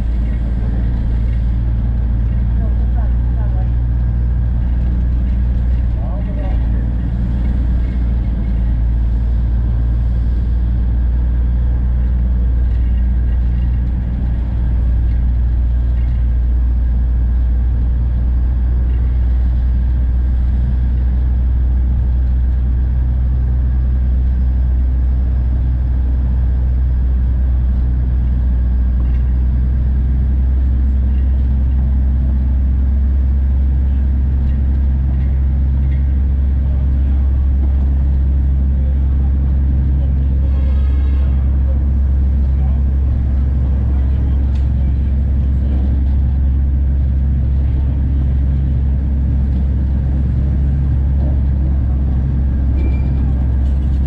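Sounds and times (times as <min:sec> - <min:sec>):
diesel locomotive engine drone: 0:00.0 - 0:54.0.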